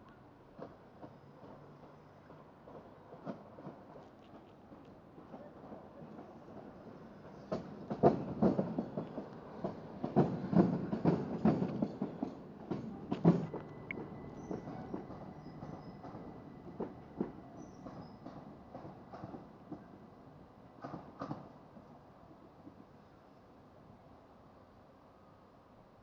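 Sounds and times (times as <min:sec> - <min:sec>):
train wheels clacking over rail joints: 0:06.1 - 0:19.9, 0:20.8 - 0:21.5.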